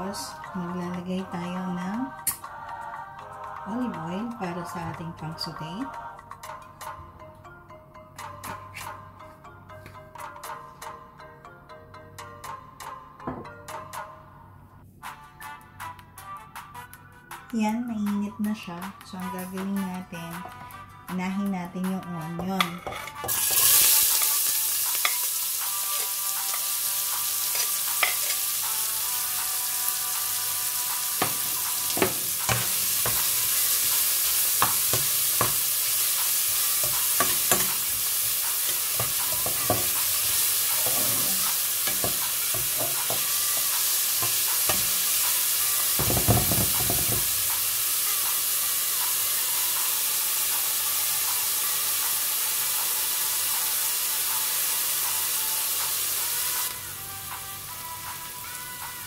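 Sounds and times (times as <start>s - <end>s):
onion sizzling in oil: 23.2s - 57.0s
utensil scraping a pot: 38.7s - 44.4s.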